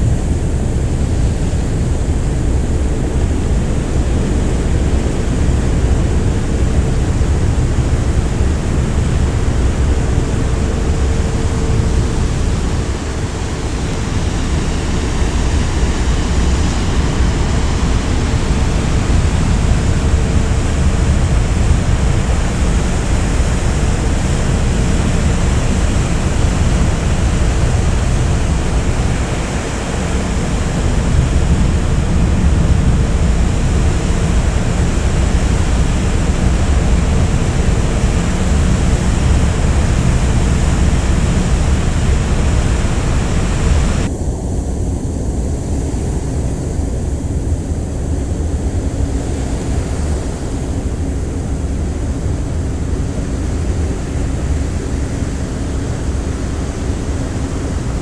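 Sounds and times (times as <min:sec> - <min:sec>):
faint steady hum: 0:00.0 - 0:58.0
low ship rumble: 0:00.0 - 0:58.0
wind and sea rushing: 0:00.0 - 0:58.0.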